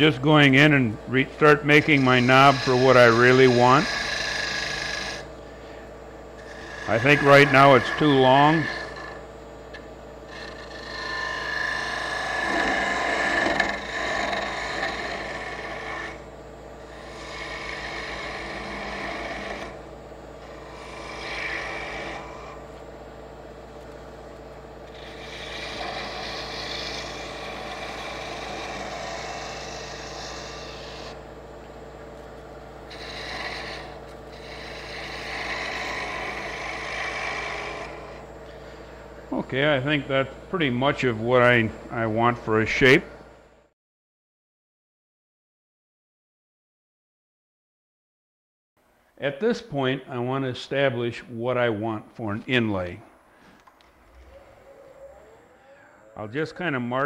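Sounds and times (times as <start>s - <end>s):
turning tool scraping wood: 0.0s - 19.8s, 20.4s - 22.9s, 24.8s - 31.3s, 32.0s - 39.1s
wood lathe motor hum: 0.0s - 43.4s.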